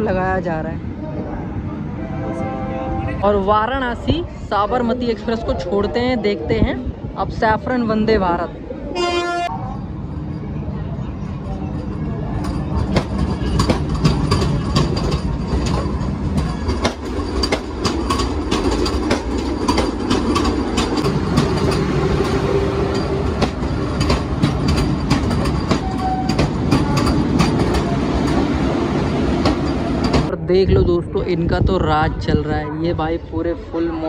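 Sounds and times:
train rumble: 0.0 - 34.0
train wheels clattering: 11.6 - 30.3.

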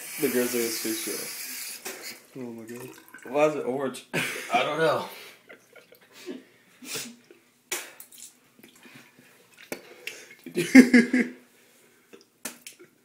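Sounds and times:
man gagging and retching: 2.7 - 3.4.

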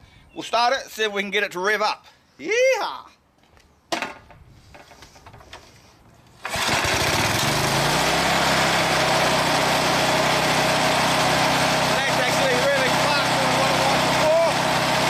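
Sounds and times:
lawn mower engine running: 6.2 - 15.0.

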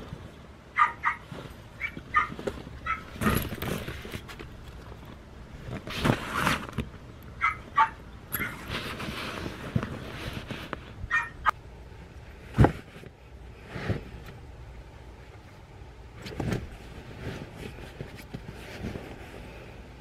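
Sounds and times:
rustling: 0.0 - 14.5, 15.1 - 20.0
dog yipping: 0.8 - 3.2, 7.4 - 8.6, 11.1 - 11.5.

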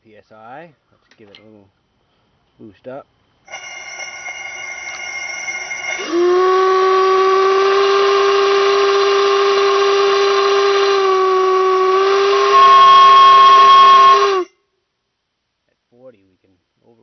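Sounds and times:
deep air whistle: 6.0 - 14.6.

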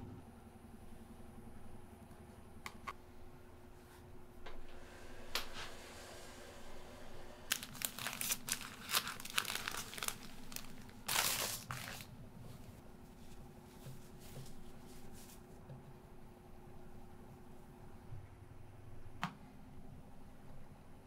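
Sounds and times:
plastic bag crinkling and rustling: 7.5 - 12.2.

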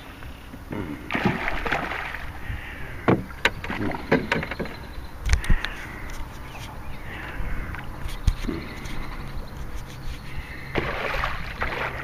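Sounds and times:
water splashing and sloshing: 0.0 - 12.0
sharp knocks: 3.1 - 4.8
fish thrashing at surface: 10.7 - 12.0.

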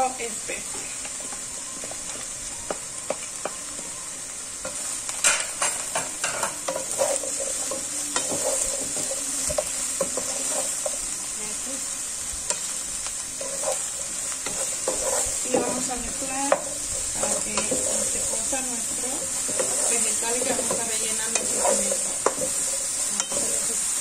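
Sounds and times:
vegetables sizzling in oil: 0.0 - 24.0
spatula scraping a pan: 4.6 - 11.1, 13.3 - 24.0.

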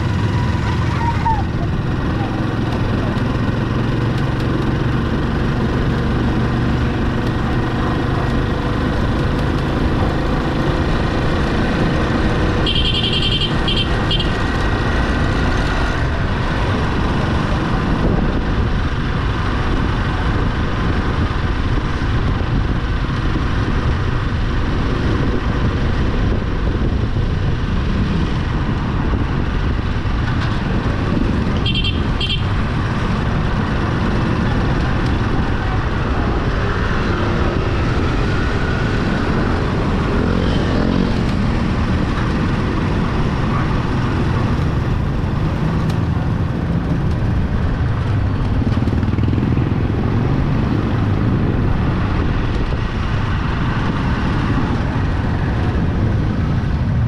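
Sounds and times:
motorcycle engine running: 0.0 - 57.0
road and wind noise: 0.0 - 57.0.

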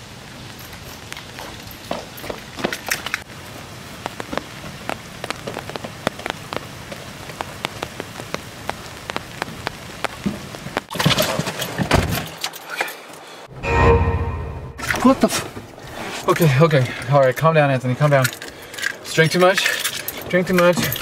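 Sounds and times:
steady rain hissing: 0.0 - 10.9
rain drop ticks: 4.0 - 10.9.

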